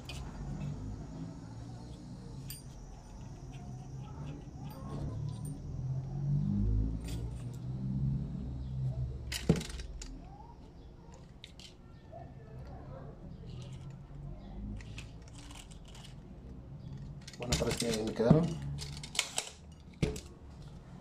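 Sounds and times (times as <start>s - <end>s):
clinks of wire and magnets: 2.4s - 5.7s, 7.0s - 7.6s, 16.9s - 20.4s.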